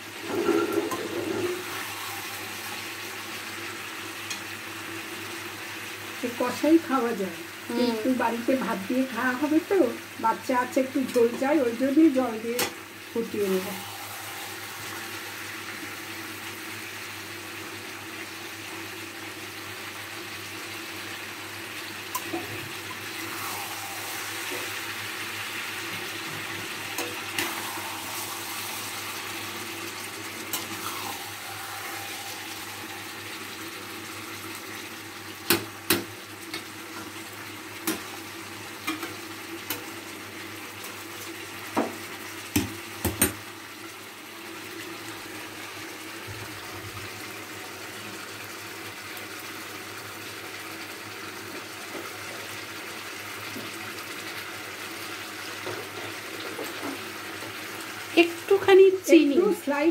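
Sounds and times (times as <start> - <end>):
curry bubbling and hissing: 0.0 - 12.3, 12.9 - 43.0.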